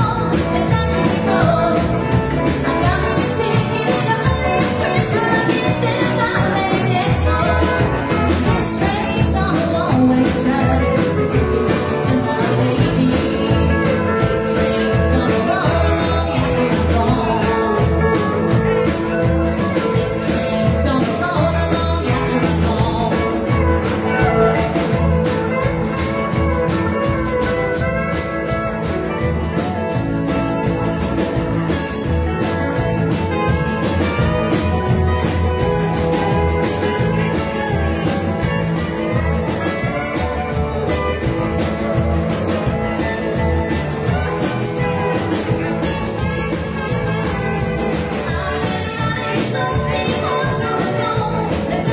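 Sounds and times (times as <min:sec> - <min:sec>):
woman singing: 0:00.0 - 0:25.4, 0:48.0 - 0:51.9
drum kit: 0:00.0 - 0:51.9
electric guitar: 0:00.0 - 0:51.9
upright double bass: 0:00.0 - 0:51.9.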